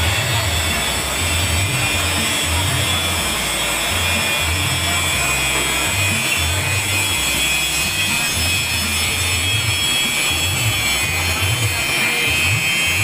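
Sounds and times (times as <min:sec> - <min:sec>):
low motor hum: 0:00.0 - 0:13.0
milling machine cutting plastic: 0:00.0 - 0:13.0.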